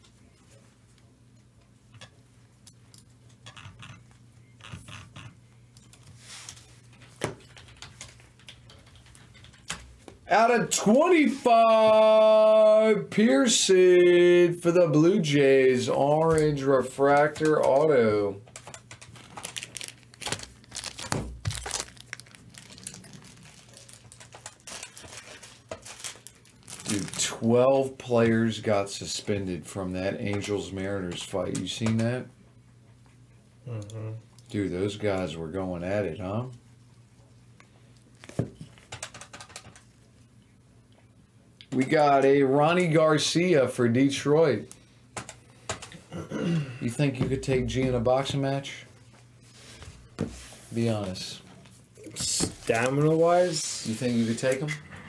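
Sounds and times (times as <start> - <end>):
faint steady hum: 0.0 - 55.0
cards rustling and clicking: 16.3 - 27.4, 38.2 - 39.9
card pack wrappers crinkling and tearing: 18.6 - 27.7.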